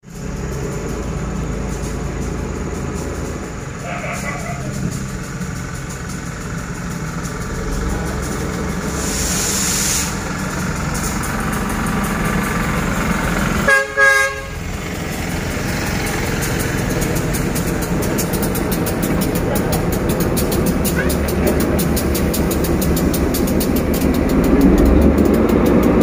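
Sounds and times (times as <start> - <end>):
diesel locomotive engine drone: 0.0 - 26.0
locomotive horn toots: 13.6 - 14.8.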